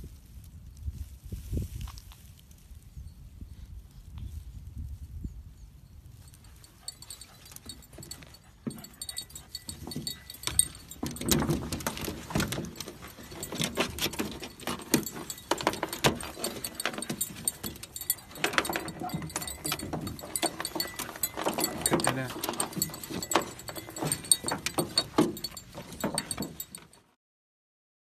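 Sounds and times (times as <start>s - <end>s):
dog collars jingling: 6.2s - 27.1s
clicks and rustling: 6.3s - 27.1s.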